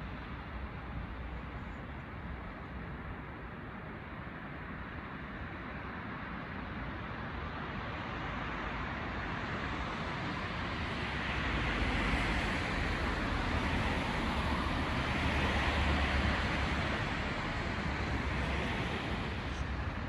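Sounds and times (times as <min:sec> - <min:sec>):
road traffic passing: 0:09.4 - 0:20.0
bus rumble: 0:09.7 - 0:20.0.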